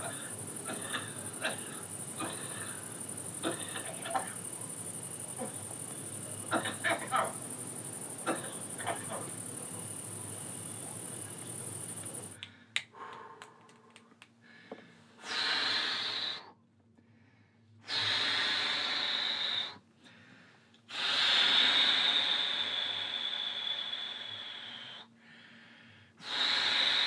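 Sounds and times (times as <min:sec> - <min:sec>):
crickets chirring: 0:00.0 - 0:12.4, 0:15.3 - 0:16.5, 0:17.9 - 0:19.8, 0:21.0 - 0:25.1, 0:26.2 - 0:27.0
heavy wheezy breaths: 0:00.0 - 0:27.0.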